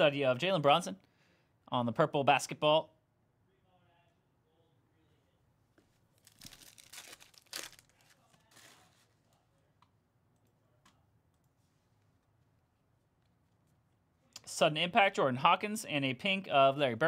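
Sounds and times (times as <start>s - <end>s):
card pack wrapper tearing: 6.2s - 9.0s.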